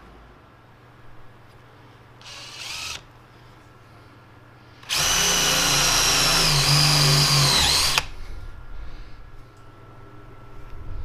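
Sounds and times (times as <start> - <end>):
cordless drill drilling metal: 2.2 - 3.0, 4.8 - 8.1.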